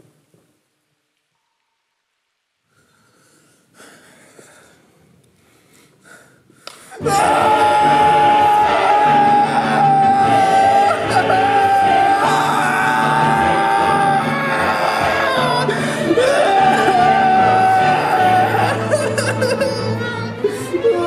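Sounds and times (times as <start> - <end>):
loud music with held high note: 7.0 - 19.1.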